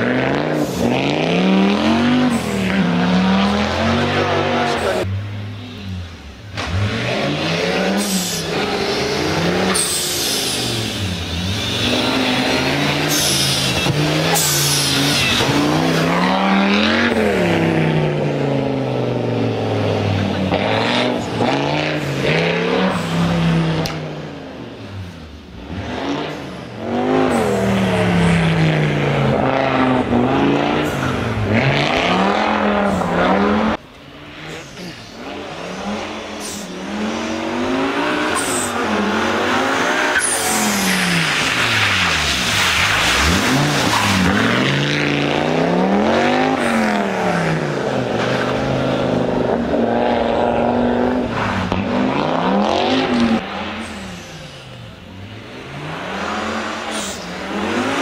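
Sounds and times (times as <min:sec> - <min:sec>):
car engine revving hard: 0:00.0 - 0:05.5, 0:06.5 - 0:24.4, 0:25.6 - 0:33.8, 0:34.4 - 0:58.0.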